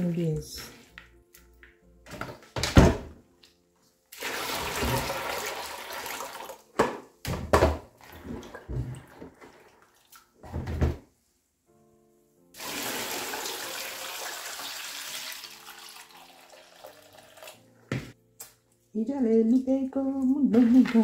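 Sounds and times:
water rushing into plastic bowl: 0:04.1 - 0:06.6, 0:12.6 - 0:17.6
splashing as hands wash beans: 0:04.1 - 0:06.7, 0:08.1 - 0:10.4, 0:12.6 - 0:17.6.

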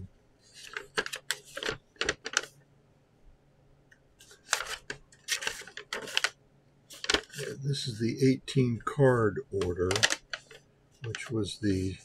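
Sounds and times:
paper crinkling and rustling: 0:00.5 - 0:02.5, 0:04.2 - 0:08.0, 0:09.5 - 0:11.5.

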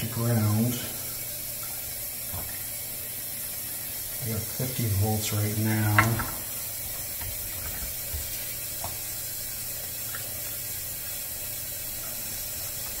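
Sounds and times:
dishwasher humming: 0:00.0 - 0:13.0
water rushing in dishwasher: 0:00.0 - 0:13.0.

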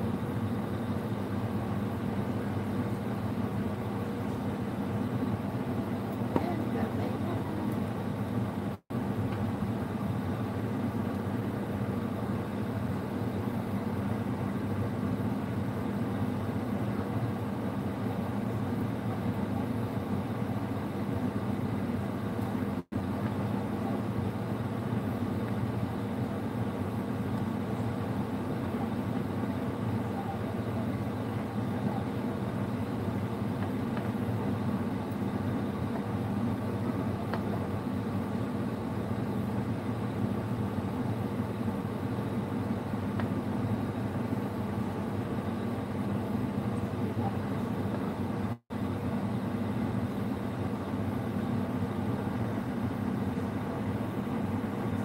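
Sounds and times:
low mechanical hum: 0:00.0 - 0:55.0.

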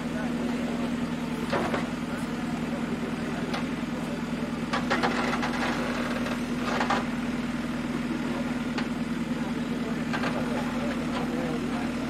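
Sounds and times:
backhoe diesel engine running: 0:00.0 - 0:12.0.

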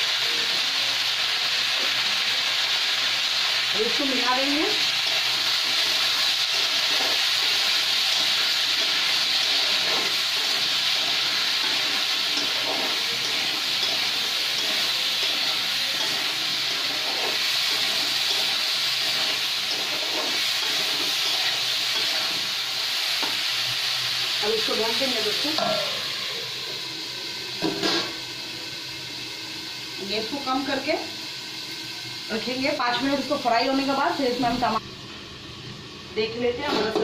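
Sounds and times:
vegetables sizzling in hot oil: 0:00.0 - 0:37.0
spatula scraping a pan: 0:04.9 - 0:22.5.

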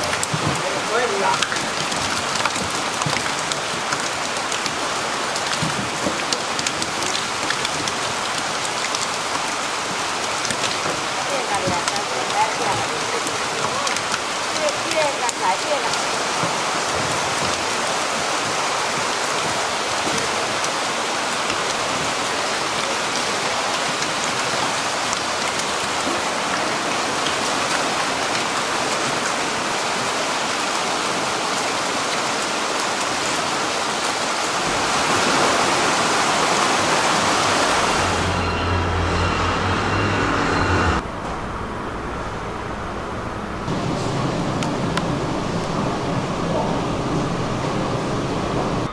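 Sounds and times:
water splashing into pond: 0:00.0 - 0:38.6
low hum: 0:37.9 - 0:48.9.

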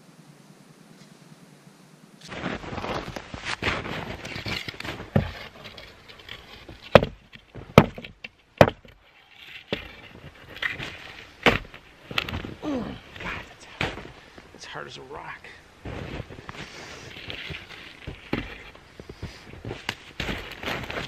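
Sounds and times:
boots crunching in snow: 0:02.2 - 0:05.3, 0:15.8 - 0:21.0
rustling: 0:02.2 - 0:14.6, 0:15.8 - 0:21.0
boot stamping on branch: 0:06.6 - 0:09.0, 0:09.7 - 0:14.5, 0:15.8 - 0:21.0.

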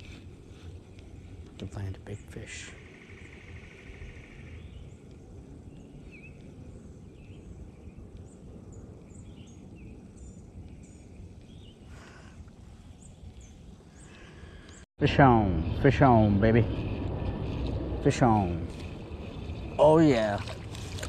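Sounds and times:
low outdoor rumble: 0:00.0 - 0:21.0
small birds chirping: 0:00.1 - 0:14.9.

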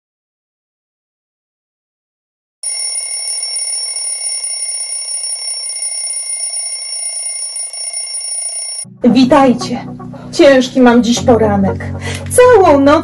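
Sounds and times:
alarm bell ringing: 0:02.6 - 0:08.9.

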